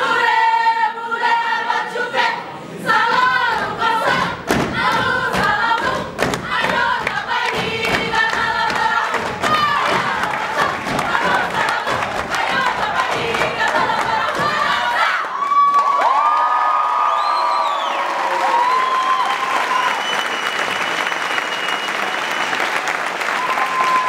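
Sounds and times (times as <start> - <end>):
group singing in unison: 0.0 - 15.3.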